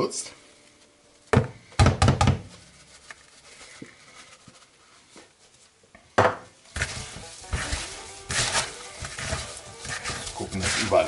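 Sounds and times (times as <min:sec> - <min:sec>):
hands rubbing spice into meat: 0:06.7 - 0:11.0.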